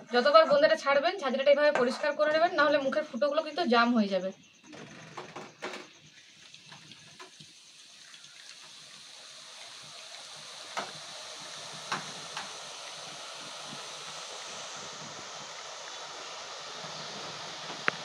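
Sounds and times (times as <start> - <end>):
batter frying in sizzling oil: 5.8 - 18.0.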